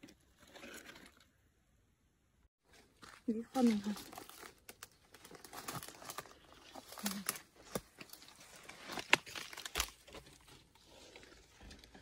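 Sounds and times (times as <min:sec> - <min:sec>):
footsteps through dry leaves: 0:02.7 - 0:11.2
twigs snapping: 0:03.6 - 0:10.4.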